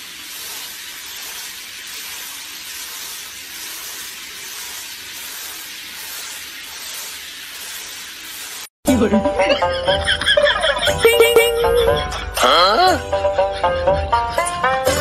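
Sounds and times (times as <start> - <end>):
water spraying from shower head: 0.0 - 8.8.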